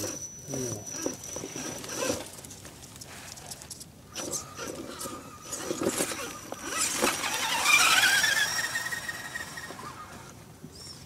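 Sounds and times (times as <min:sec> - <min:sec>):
electric motor whining: 0:04.2 - 0:10.3.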